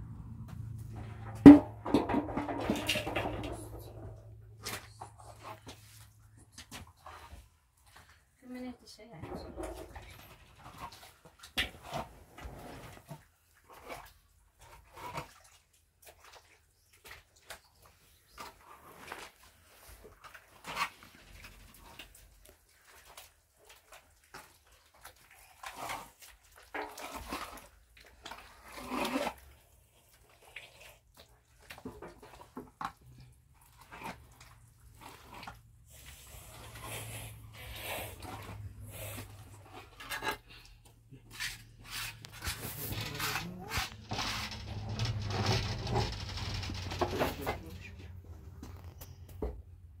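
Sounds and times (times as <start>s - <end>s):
trowels scraping wet plaster: 25.5s - 29.6s, 33.7s - 45.9s
trowel scraping plaster basin: 28.3s - 29.6s, 33.7s - 47.6s.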